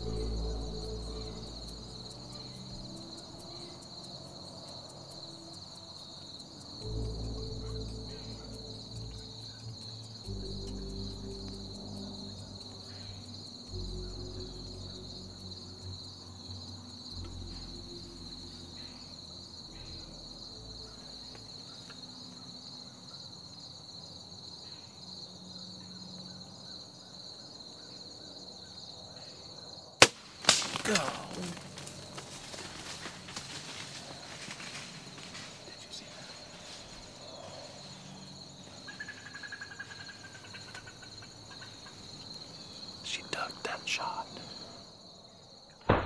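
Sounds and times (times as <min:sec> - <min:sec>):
insect chorus trilling: 0:00.0 - 0:46.0.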